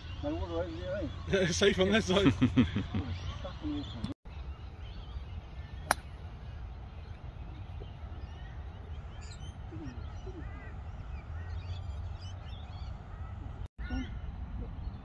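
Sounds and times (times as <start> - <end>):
birds calling: 0.0 - 15.0.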